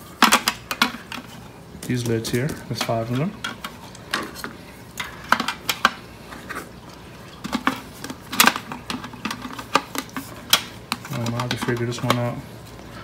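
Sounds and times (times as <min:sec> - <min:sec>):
plastic attachments clicking and clattering: 0:00.2 - 0:06.0, 0:07.4 - 0:12.4.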